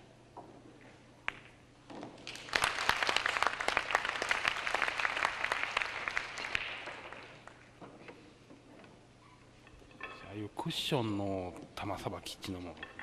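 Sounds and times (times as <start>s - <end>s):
audience applauding: 2.2s - 7.6s.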